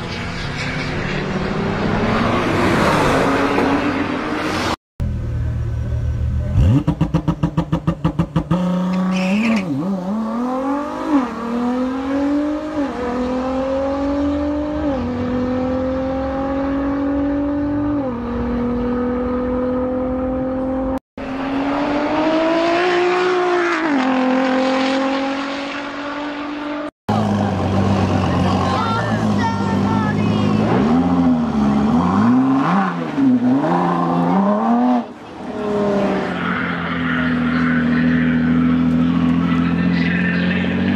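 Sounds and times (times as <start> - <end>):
second car accelerating: 0.0 - 40.9
car accelerating hard: 6.5 - 29.5.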